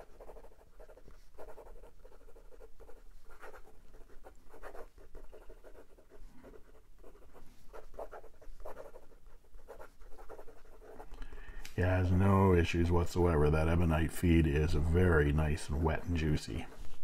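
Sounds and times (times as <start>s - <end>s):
pen scratching on paper: 0.0s - 11.4s.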